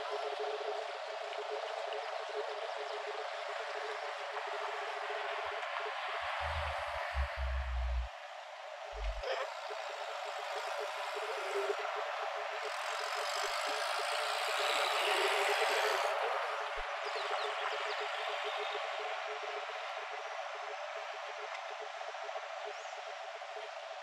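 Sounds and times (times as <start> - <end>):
outdoor noise: 0.0 - 24.0.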